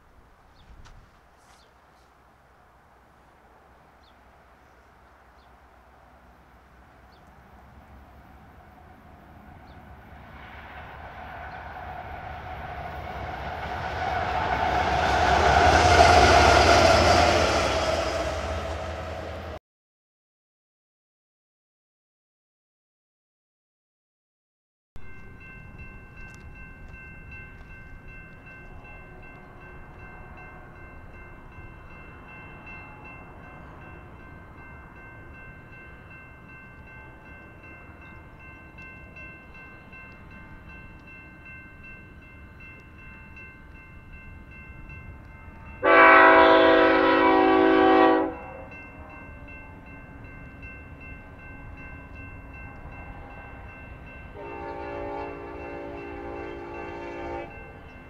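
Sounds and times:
low rumble of train: 0:00.0 - 0:19.6, 0:25.0 - 0:58.0
locomotive air horn blast: 0:45.8 - 0:49.1, 0:54.4 - 0:57.6.

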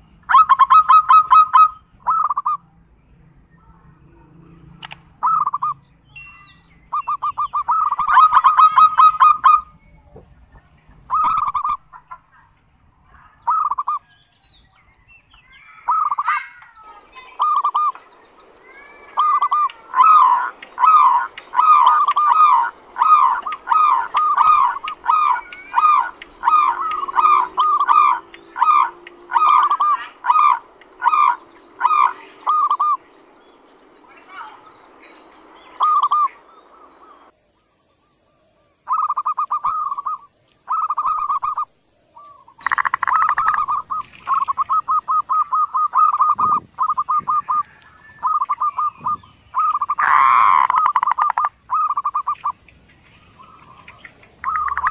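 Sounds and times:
dove cooing calls: 0:00.3 - 0:02.6, 0:05.2 - 0:05.8, 0:06.9 - 0:12.6, 0:13.4 - 0:14.1, 0:17.2 - 0:18.0, 0:18.8 - 0:33.0, 0:35.8 - 0:36.4, 0:38.8 - 0:54.9.

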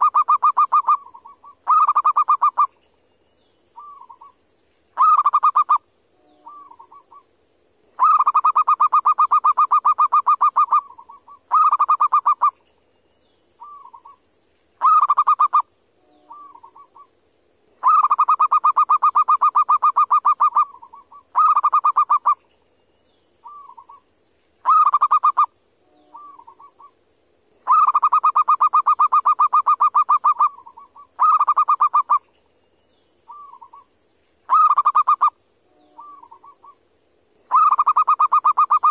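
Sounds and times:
dove cooing: 0:00.0 - 0:02.7, 0:05.0 - 0:05.8, 0:08.0 - 0:12.5, 0:14.8 - 0:15.6, 0:17.8 - 0:22.4, 0:24.6 - 0:25.5, 0:26.1 - 0:26.9, 0:27.7 - 0:32.2, 0:34.5 - 0:35.3, 0:35.9 - 0:36.8, 0:37.5 - 0:38.9
steady high hiss: 0:00.0 - 0:38.9.

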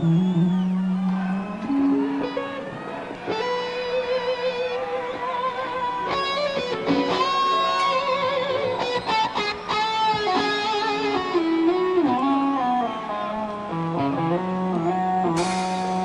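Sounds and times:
electric guitar slow lead melody: 0:00.0 - 0:16.0.

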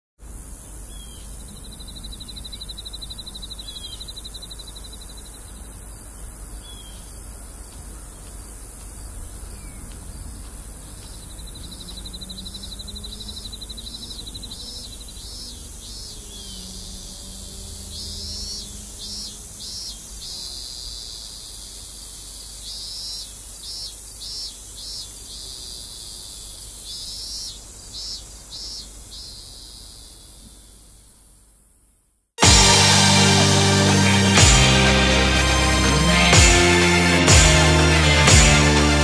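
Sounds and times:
high insect drone: 0:09.6 - 0:25.0
fast buzzing trill: 0:32.4 - 0:39.0.

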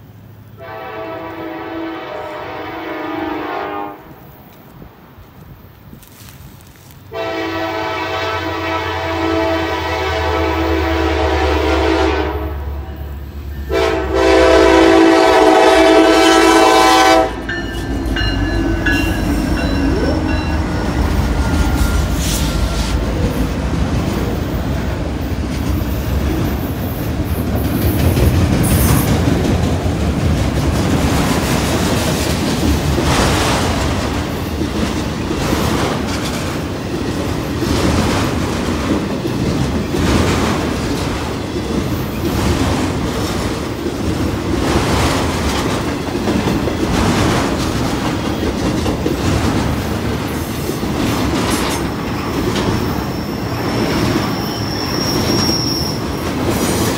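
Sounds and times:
freight train rumbling past: 0:00.0 - 0:56.9
train horn blast: 0:00.6 - 0:04.2, 0:07.1 - 0:23.1.

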